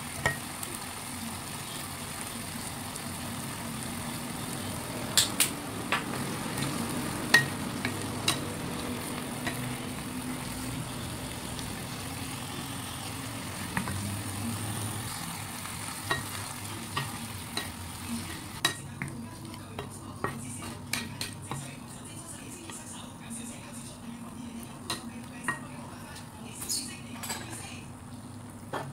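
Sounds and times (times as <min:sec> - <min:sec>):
sauce sizzling in frying pan: 0:00.0 - 0:18.8.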